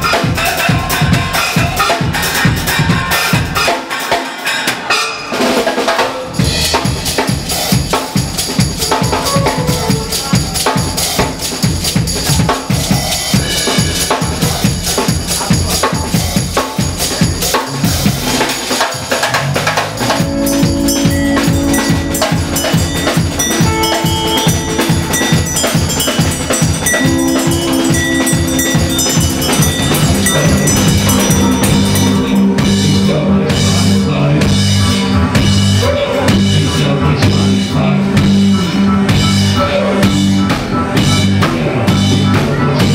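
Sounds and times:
fast drum beat: 0:00.0 - 0:04.4, 0:05.3 - 0:42.9
low synth notes: 0:20.0 - 0:42.9.

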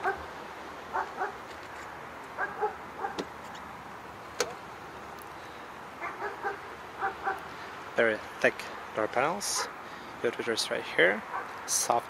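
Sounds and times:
dog barking: 0:00.0 - 0:00.2, 0:00.9 - 0:01.4, 0:02.4 - 0:03.2, 0:06.0 - 0:07.4, 0:11.3 - 0:11.6.

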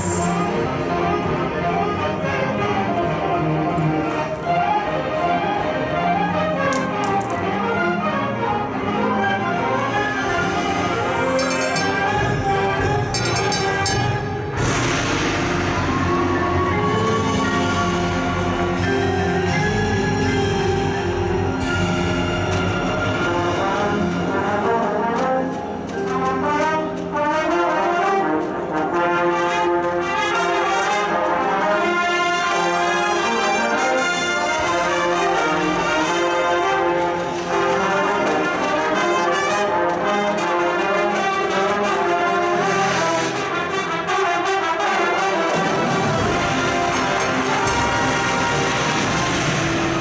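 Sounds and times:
percussion: 0:00.0 - 0:01.9, 0:09.8 - 0:50.0
marching band brass: 0:00.0 - 0:50.0.

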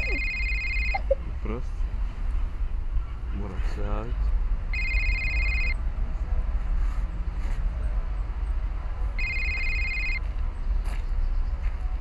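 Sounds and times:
mobile phone ringing: 0:00.0 - 0:01.2, 0:04.7 - 0:05.8, 0:09.2 - 0:10.2.

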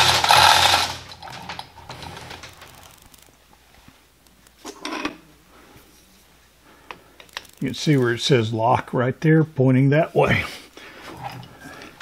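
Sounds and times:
metal scrape and clunk: 0:00.0 - 0:02.8.

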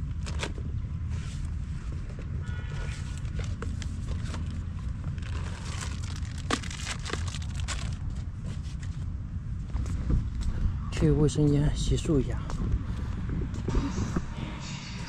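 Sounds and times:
steady low rumble: 0:03.0 - 0:15.0
plastic bag crinkling: 0:03.2 - 0:08.3.

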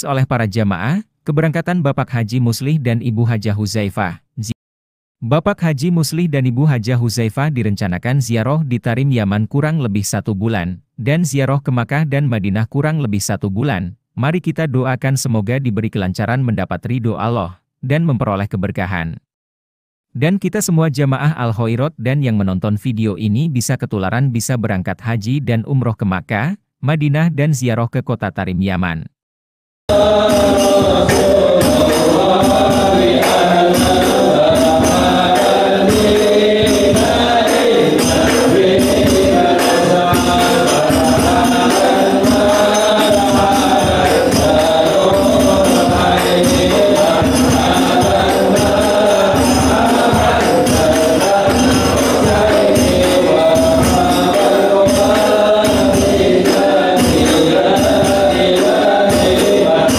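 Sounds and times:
bass drum beat: 0:29.9 - 0:59.9
frame drums beating: 0:29.9 - 0:59.9
men chanting together: 0:29.9 - 0:59.9.

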